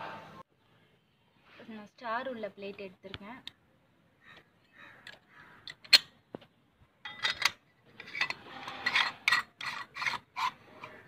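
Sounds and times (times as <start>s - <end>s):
metal scraping: 7.0s - 11.0s
metal vessels clinking: 7.0s - 11.0s.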